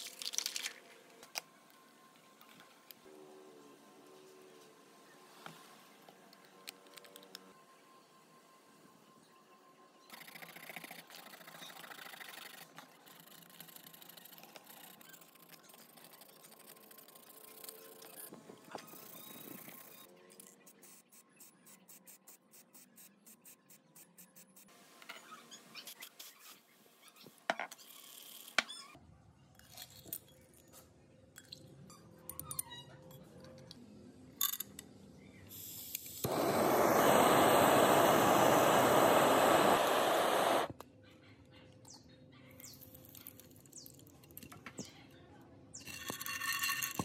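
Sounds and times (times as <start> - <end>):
spray paint hissing: 35.6 - 40.8.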